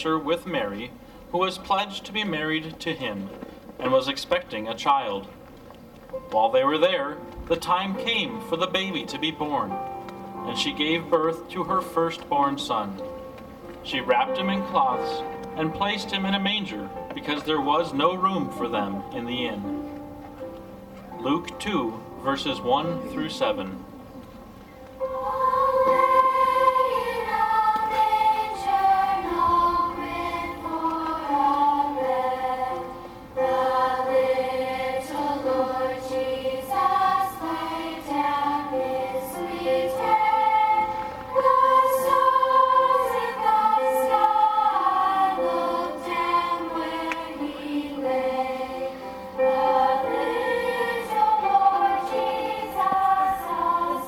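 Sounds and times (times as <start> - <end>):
choir singing a slow carol: 24.9 - 54.0.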